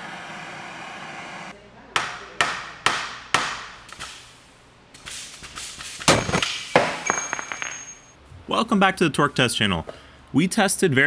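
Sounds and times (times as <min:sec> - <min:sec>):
hammer hitting metal: 0:02.0 - 0:03.7, 0:06.1 - 0:08.0
high lingering ring: 0:06.1 - 0:08.1.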